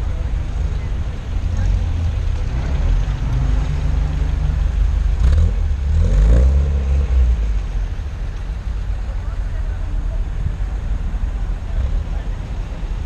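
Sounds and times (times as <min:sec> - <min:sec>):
cars driving past: 0:00.0 - 0:13.0
engine revving: 0:05.1 - 0:07.6.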